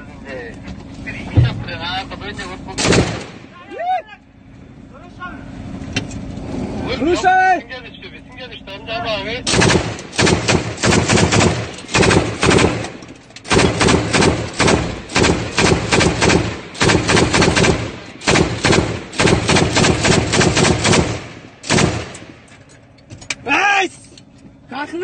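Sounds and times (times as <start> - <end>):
machine gun automatic bursts: 2.8 - 3.4, 9.5 - 22.3.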